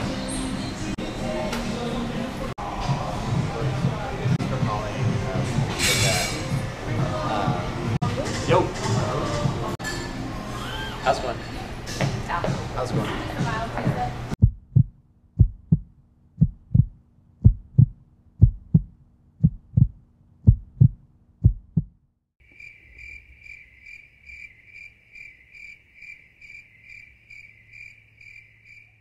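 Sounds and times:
heartbeat low double thump: 14.4 - 22.0
crickets chirping: 22.4 - 29.0.

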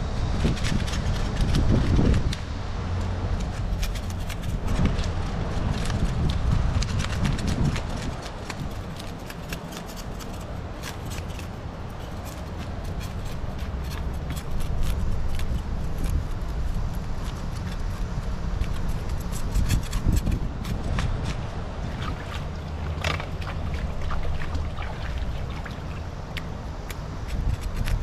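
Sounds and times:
knife scraping fish scales: 8.5 - 16.3, 16.9 - 21.2.

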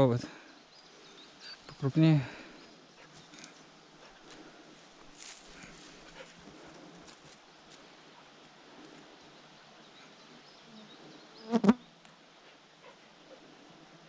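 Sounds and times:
flying insect buzzing: 10.7 - 11.9.

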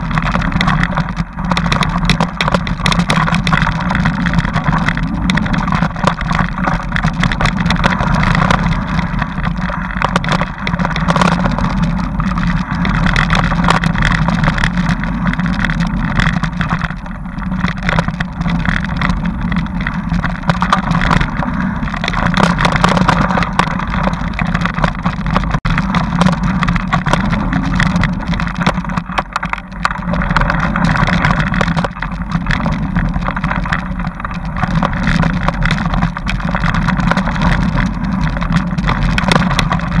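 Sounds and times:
bike riding rumble: 0.0 - 40.0
knocks and rattles over bumps: 0.0 - 40.0.

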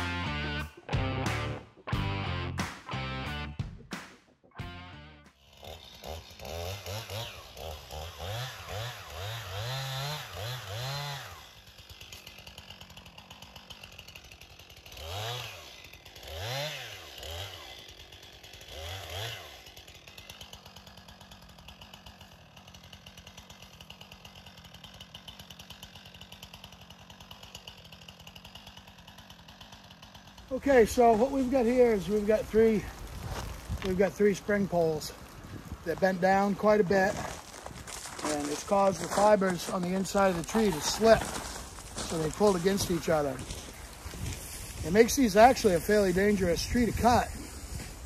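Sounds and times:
chainsaw revving and idling: 0.0 - 48.0.

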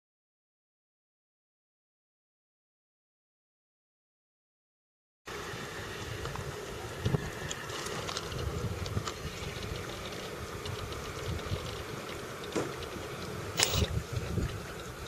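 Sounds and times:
steady outdoor hiss: 5.3 - 15.0
wind rumbling on microphone: 5.4 - 15.0
sharp clicks: 13.6 - 13.9.

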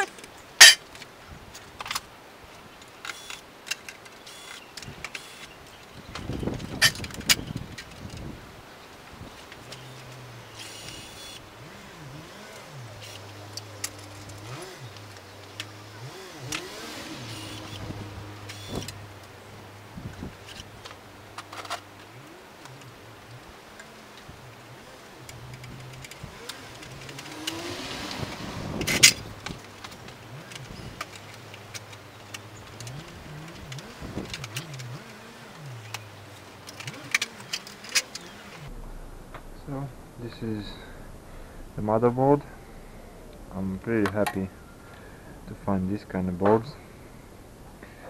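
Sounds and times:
screws and metal parts clinking: 0.0 - 2.1, 25.3 - 38.6
cordless drill whirring: 4.3 - 5.5, 9.8 - 11.5, 16.1 - 19.0.

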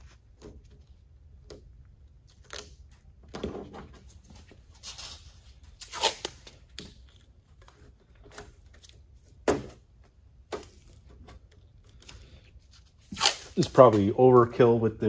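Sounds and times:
tape ripping off roll: 4.8 - 7.3, 13.0 - 14.1.

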